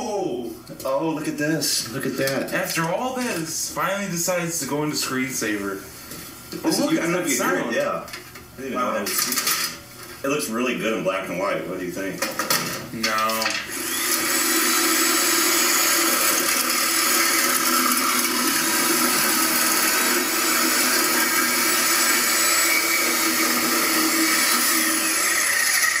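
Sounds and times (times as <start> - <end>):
electric power tool motor running: 13.7 - 26.0.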